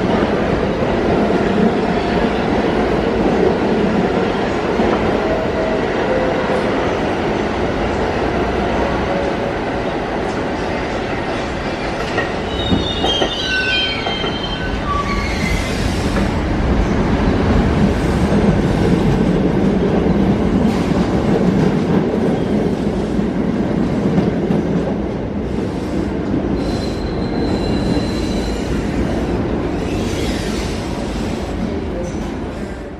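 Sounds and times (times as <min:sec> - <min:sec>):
heavy train rumble: 0:00.0 - 0:32.9
train wheel squeals: 0:11.8 - 0:16.2, 0:26.6 - 0:29.1, 0:29.8 - 0:30.9.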